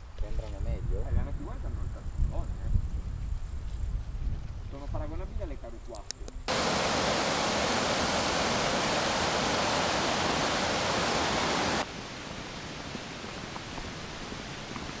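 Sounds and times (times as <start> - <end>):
steady hiss: 4.9 - 15.0
fast-flowing water rushing: 6.5 - 15.0.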